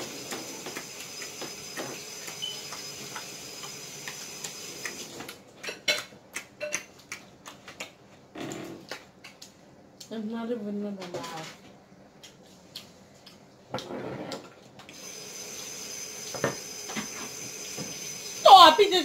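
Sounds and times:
wet chewing: 0:12.2 - 0:13.5.

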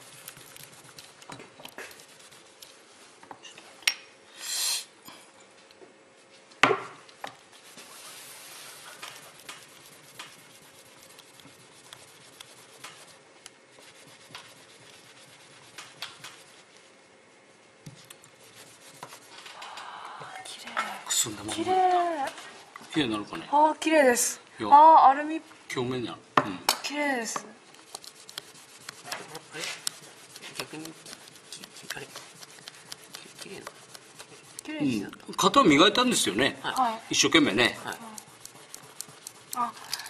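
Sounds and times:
cloth rubbing metal: 0:07.5 - 0:17.1, 0:18.3 - 0:19.5, 0:27.8 - 0:39.8.

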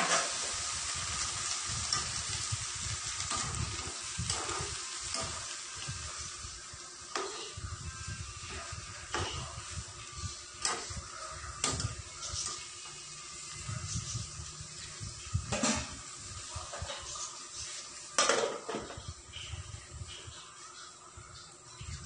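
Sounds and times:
utensils clinking on pots: 0:00.0 - 0:00.6, 0:03.2 - 0:06.0, 0:18.2 - 0:19.0.

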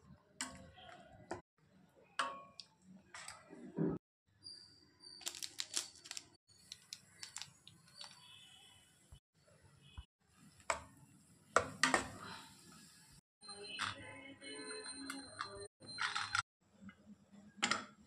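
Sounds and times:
plastic sachet crinkling: 0:05.2 - 0:08.2.

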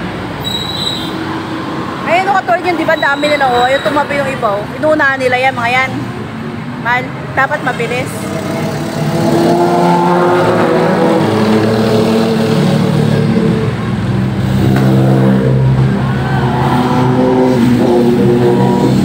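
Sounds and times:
car and motorcycles passing: 0:03.8 - 0:19.0.

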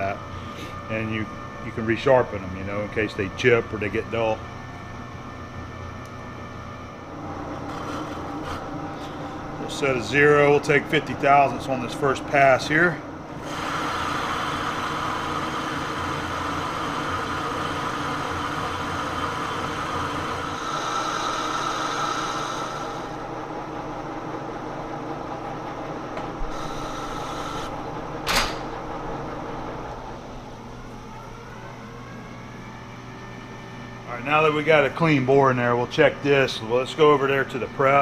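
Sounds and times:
lathe humming while cutting metal: 0:06.4 - 0:30.8.

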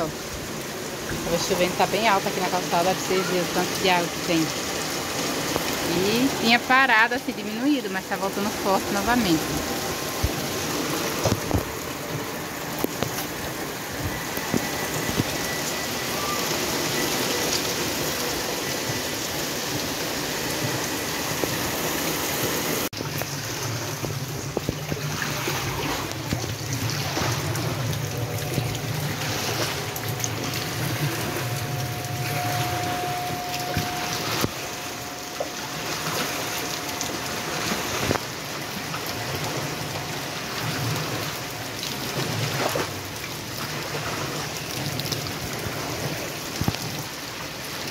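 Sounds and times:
heavy rain pouring: 0:00.0 - 0:47.9
water running over sidewalk: 0:00.0 - 0:47.9
squeegee pushing water: 0:24.6 - 0:44.6.

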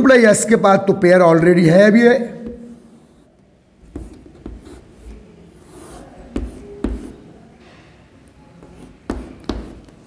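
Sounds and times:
chalk scratching on blackboard: 0:02.7 - 0:07.3, 0:08.6 - 0:09.9
chalk tapping on blackboard: 0:03.9 - 0:07.2, 0:08.6 - 0:10.0.

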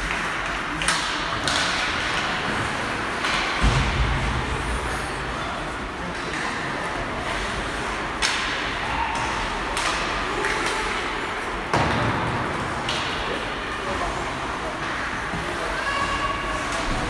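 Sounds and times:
sharp cracks of hockey play: 0:00.0 - 0:04.0, 0:07.2 - 0:11.1.

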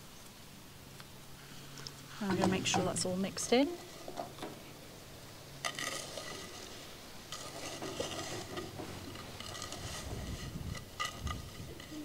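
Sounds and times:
stirring sugar through cherries: 0:05.6 - 0:12.0.

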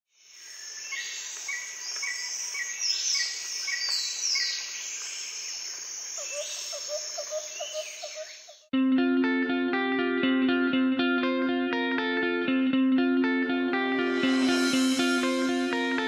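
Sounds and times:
birds chirping: 0:00.2 - 0:08.7.

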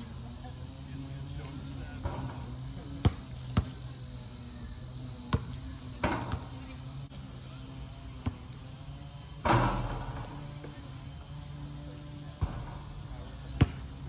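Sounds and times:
steady low hum: 0:00.0 - 0:14.0
basketball bouncing on hard court: 0:03.0 - 0:03.8, 0:05.3 - 0:06.5, 0:13.5 - 0:13.9.

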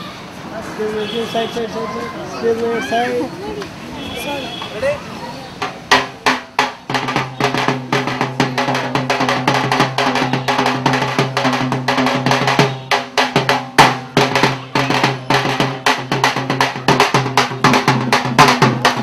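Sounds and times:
frame drum fast rhythm: 0:05.5 - 0:19.0.

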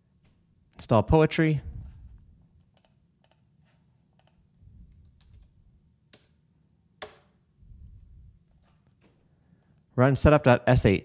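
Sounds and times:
keyboard and mouse clicks: 0:02.6 - 0:03.5, 0:04.1 - 0:06.4, 0:07.0 - 0:07.3.

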